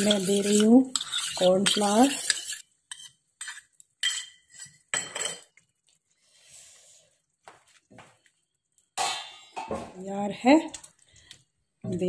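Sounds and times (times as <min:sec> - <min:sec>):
utensils clinking on metal pan: 0:00.0 - 0:05.6.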